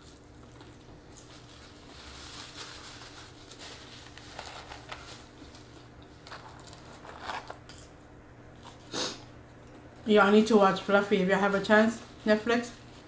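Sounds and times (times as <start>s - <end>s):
paper wrappers crumpling: 0.2s - 7.6s.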